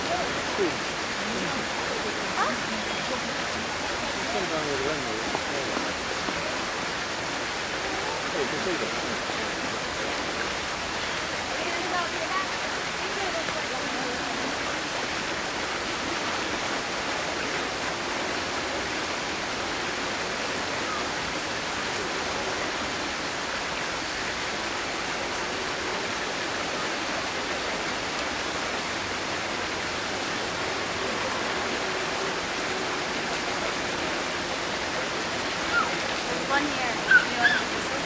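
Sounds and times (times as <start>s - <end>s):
falling water rushing: 0.0s - 38.0s.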